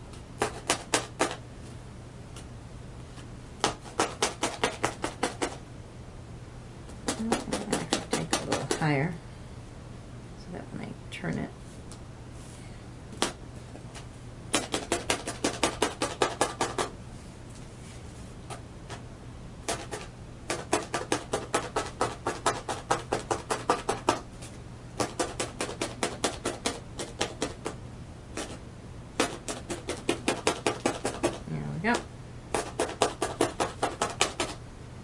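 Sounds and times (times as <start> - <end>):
felting needle tapping: 3.6 - 5.6, 6.9 - 8.9, 19.7 - 24.2, 25.0 - 27.8, 29.2 - 34.6.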